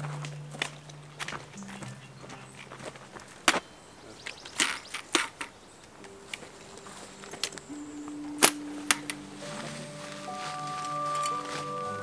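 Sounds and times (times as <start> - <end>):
boots crunching on stony trail: 0.0 - 4.5
trekking poles striking stones: 0.0 - 6.4.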